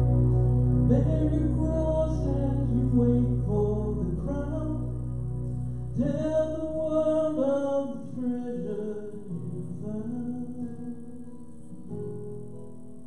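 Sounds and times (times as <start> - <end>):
low bass: 0.0 - 8.9
person singing worship song: 0.0 - 11.3
guitar chords: 0.0 - 13.0.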